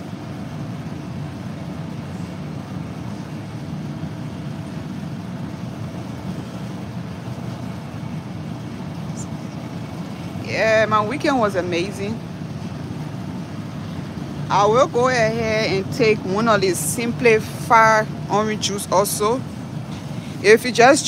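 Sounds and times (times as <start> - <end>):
refrigeration and ventilation hum: 0.0 - 21.0.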